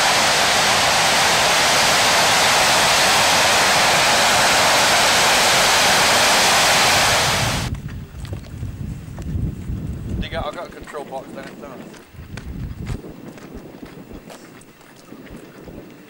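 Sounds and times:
jet engine running: 0.0s - 7.7s
low rumble: 0.0s - 8.8s.

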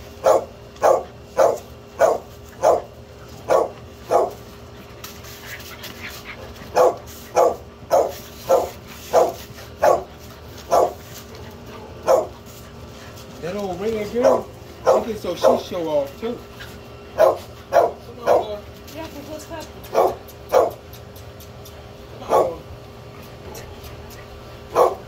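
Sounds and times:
dog barking: 0.2s - 2.9s, 3.5s - 4.4s, 6.7s - 10.1s, 10.7s - 11.0s, 12.0s - 12.4s, 14.2s - 15.7s, 17.2s - 18.6s, 19.9s - 20.8s, 22.2s - 22.6s, 24.7s - 25.0s.

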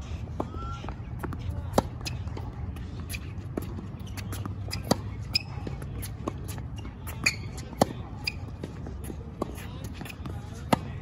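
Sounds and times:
tennis balls hit with racquets: 0.4s - 11.0s
sneaker squeaks on court: 3.1s - 8.6s.

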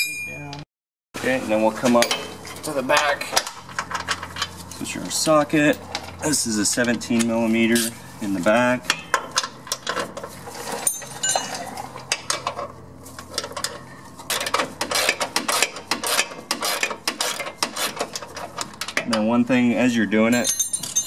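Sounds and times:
metal tools clinking: 1.7s - 8.0s, 8.9s - 12.6s, 20.2s - 21.0s.

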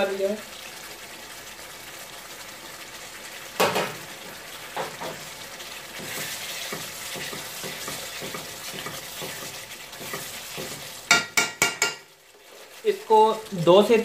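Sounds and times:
curry sizzling: 0.0s - 14.0s
spatula stirring in a pot: 3.7s - 14.0s
spatula knocking against pot: 6.0s - 12.1s.

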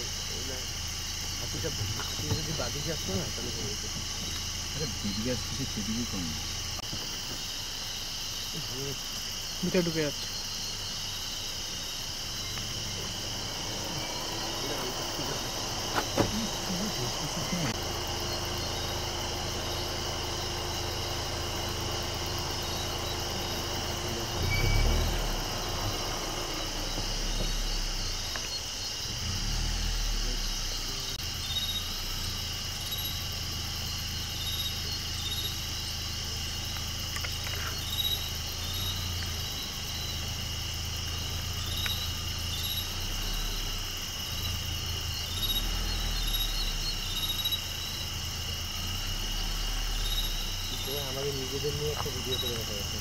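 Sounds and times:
crickets chirring: 0.0s - 53.0s
vehicle engine idling: 0.0s - 53.0s
dull thump: 1.7s - 2.8s, 15.9s - 16.6s.

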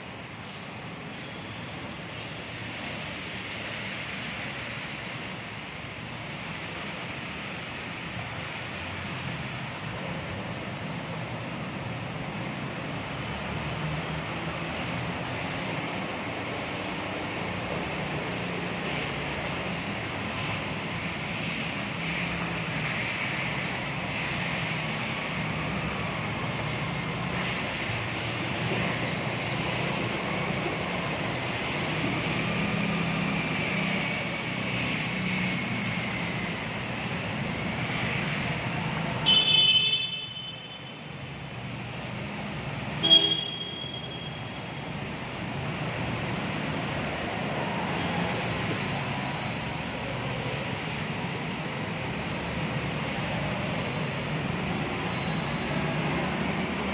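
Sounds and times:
scooter engines: 9.8s - 56.9s
vehicle horn: 39.2s - 40.8s, 43.0s - 44.4s.

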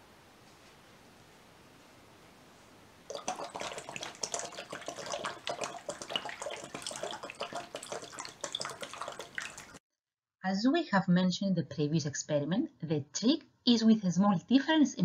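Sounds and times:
water splashing into plastic tub: 3.1s - 9.8s.

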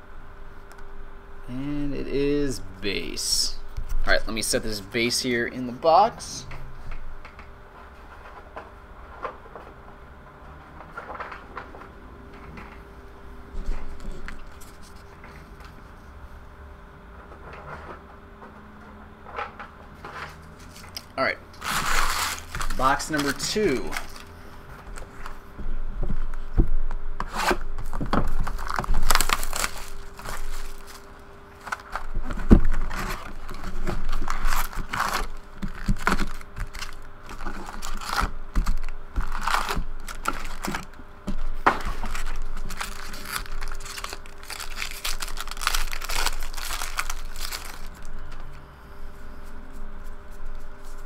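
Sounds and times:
foil packs crinkling: 21.6s - 24.3s, 27.8s - 48.4s.

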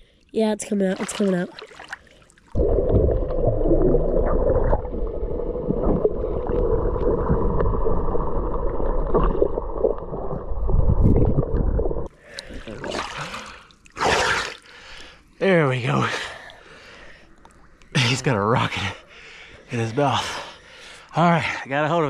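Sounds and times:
underwater rumble and gurgling: 2.6s - 12.8s.

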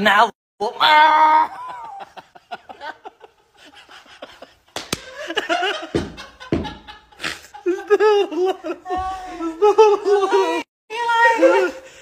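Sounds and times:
men laughing: 1.2s - 10.7s
sharp slap: 4.8s - 5.2s.

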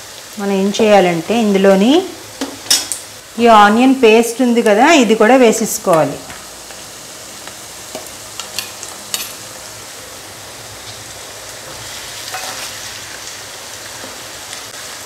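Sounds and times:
onions sizzling in hot oil: 0.0s - 15.0s
spoon scraping and stirring: 12.3s - 12.7s.

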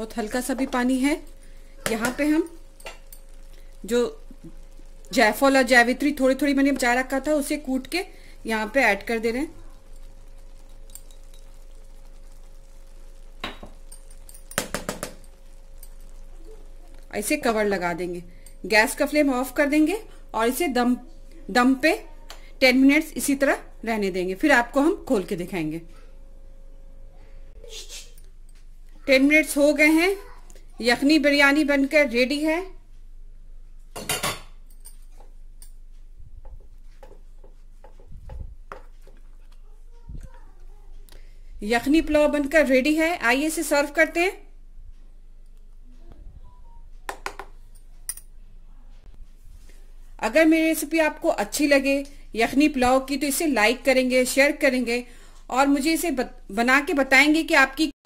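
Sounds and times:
faint steady hum: 0.0s - 57.8s
cookware clinking: 9.9s - 11.8s, 13.4s - 16.2s.

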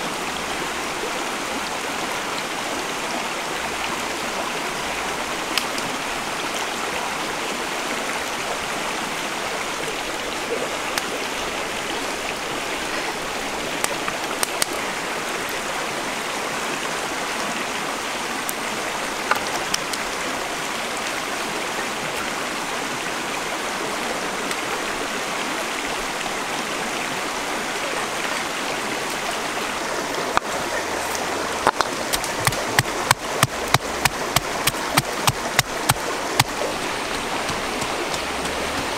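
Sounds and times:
stream water running: 0.0s - 38.9s
pestle pounding in a mortar: 32.4s - 36.6s.

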